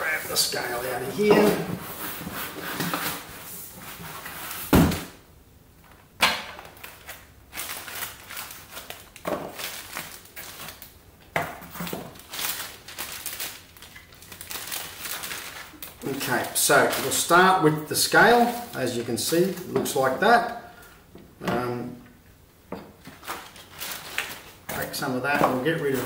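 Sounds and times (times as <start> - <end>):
foam and cardboard rustling: 0.0 - 5.1, 23.0 - 26.0.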